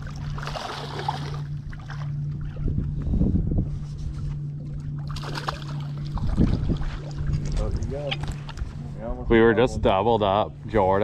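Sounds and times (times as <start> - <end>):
water splashes: 0.0 - 2.6, 4.9 - 8.2
boat motor humming: 0.0 - 11.0.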